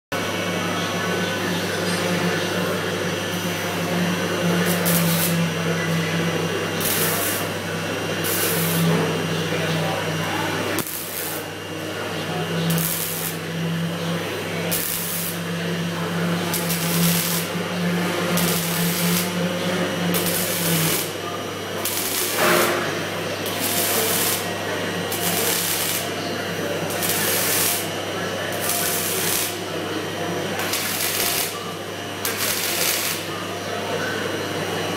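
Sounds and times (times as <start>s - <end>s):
low machine hum: 0.2s - 34.9s
welding arc crackling and hissing: 3.5s - 5.5s, 6.6s - 9.0s, 10.7s - 11.6s, 12.7s - 13.6s, 14.6s - 26.2s, 26.8s - 29.7s, 30.6s - 33.3s.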